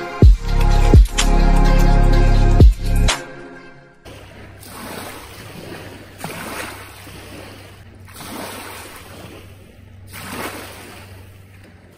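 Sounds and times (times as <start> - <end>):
small waves washing onto beach: 4.0 - 11.9.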